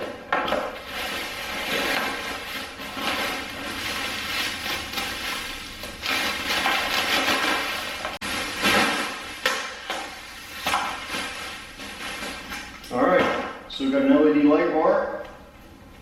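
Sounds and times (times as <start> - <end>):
bubble wrap crinkling: 0.7 - 12.8.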